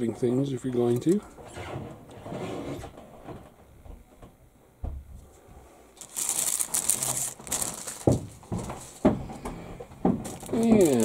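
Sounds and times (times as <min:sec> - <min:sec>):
plastic bag crinkling: 0:06.0 - 0:09.2, 0:10.0 - 0:11.0
dull knocks: 0:07.6 - 0:11.0.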